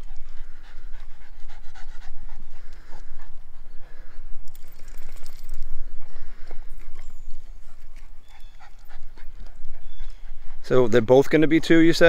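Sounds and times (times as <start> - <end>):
dog panting: 0.0 - 12.0.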